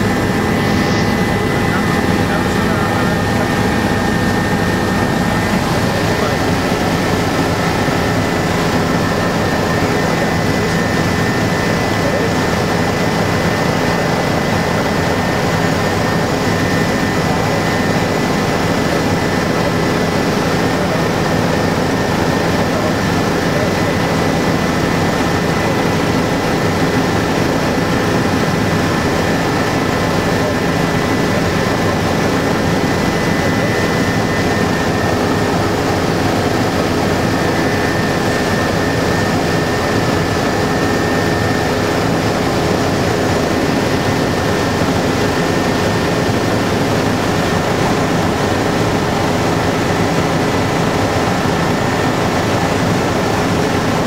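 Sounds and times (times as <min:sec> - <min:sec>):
high whine: 0:00.0 - 0:20.1
helicopter engine and rotor drone: 0:00.0 - 0:54.0.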